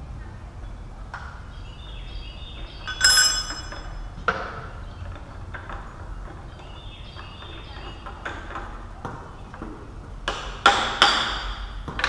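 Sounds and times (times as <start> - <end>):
ringing metal clanks: 2.9 - 4.2.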